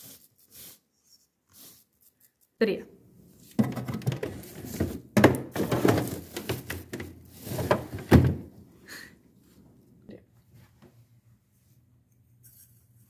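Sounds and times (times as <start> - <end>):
plastic drawer sliding and knocking: 3.5 - 8.6.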